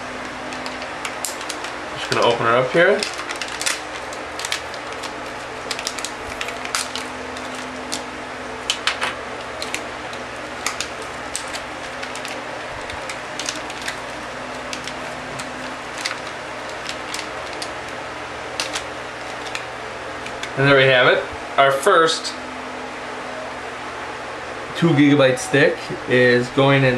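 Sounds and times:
plastic packaging crackling: 0:00.0 - 0:20.6
steady low hum: 0:00.0 - 0:26.9.

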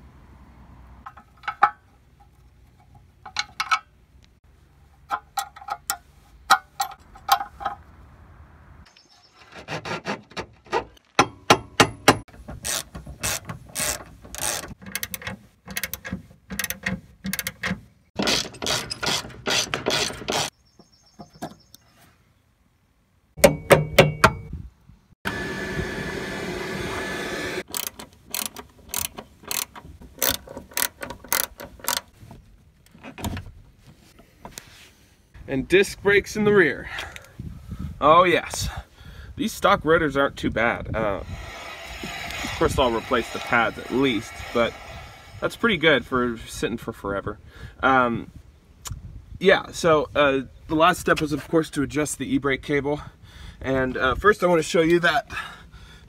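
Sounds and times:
socket ratchet clicking: 0:27.6 - 0:32.1.

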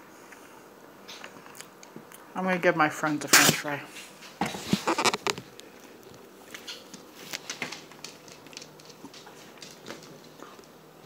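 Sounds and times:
dog clicks on tile floor: 0:05.1 - 0:10.8.

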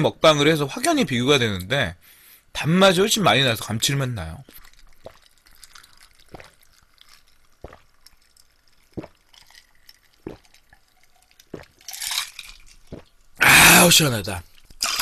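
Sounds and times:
person gulping a drink: 0:04.4 - 0:13.8, 0:14.4 - 0:15.0.

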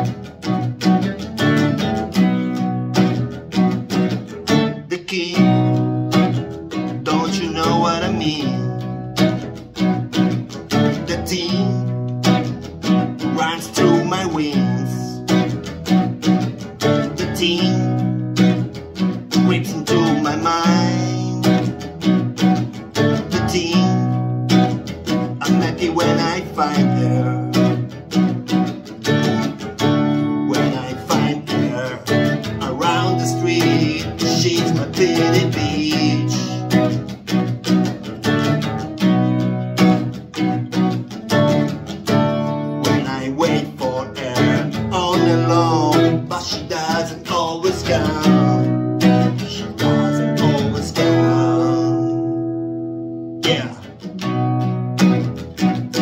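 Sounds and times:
acoustic guitar strumming chords: 0:00.0 - 0:56.0
man singing: 0:04.8 - 0:06.3, 0:06.9 - 0:09.1, 0:10.7 - 0:12.5, 0:13.2 - 0:15.5, 0:16.9 - 0:18.6, 0:19.3 - 0:21.9, 0:22.9 - 0:28.0, 0:30.0 - 0:37.1, 0:42.8 - 0:52.6, 0:53.4 - 0:54.1.

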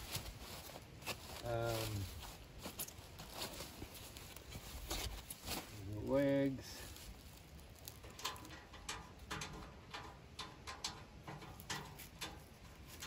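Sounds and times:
metal clicks and taps: 0:07.9 - 0:13.0.

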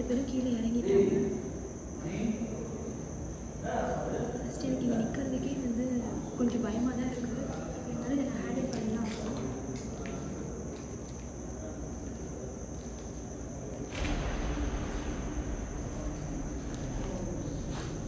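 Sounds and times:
crickets chirping: 0:00.0 - 0:18.0
footsteps on concrete floor: 0:12.0 - 0:18.0.

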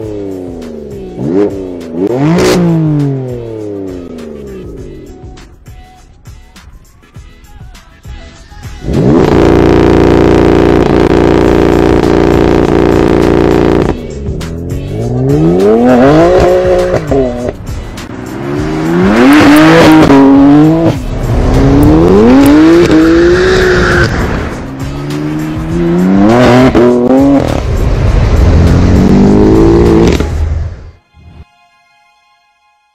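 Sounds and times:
car engine accelerating hard: 0:01.2 - 0:03.3, 0:08.9 - 0:14.0, 0:14.7 - 0:30.8.

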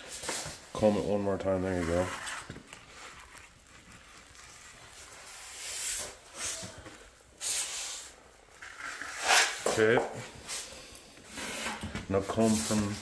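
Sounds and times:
trowel scraping wet cement: 0:00.8 - 0:06.2, 0:08.6 - 0:09.8.

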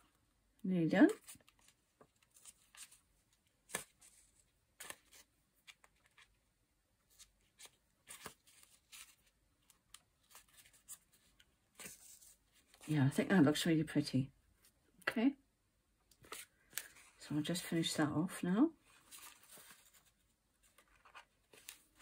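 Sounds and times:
paper and thread rustling: 0:01.0 - 0:06.4, 0:07.0 - 0:13.1, 0:18.8 - 0:22.0.

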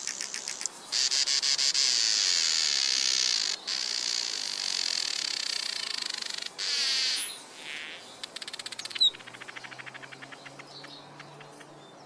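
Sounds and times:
insect buzzing: 0:00.0 - 0:09.0.

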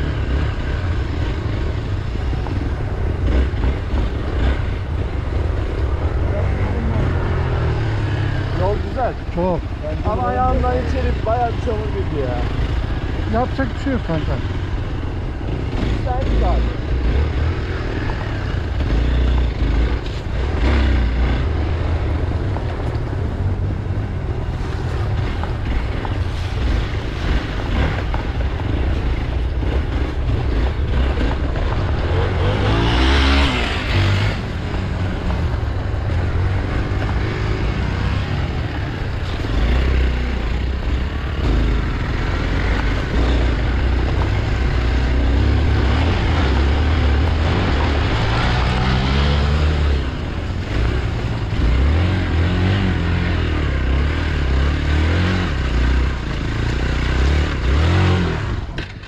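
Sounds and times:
motorcycle engine running: 0:00.0 - 0:59.0.

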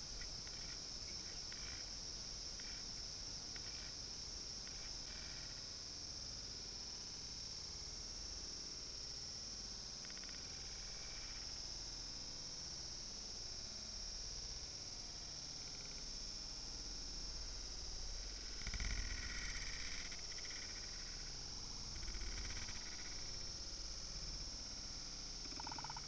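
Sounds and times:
steady high-pitched hiss: 0:00.0 - 0:26.0.

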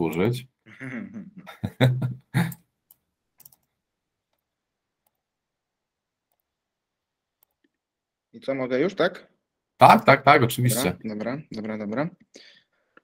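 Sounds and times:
man's voice: 0:00.0 - 0:02.6, 0:09.8 - 0:11.8.

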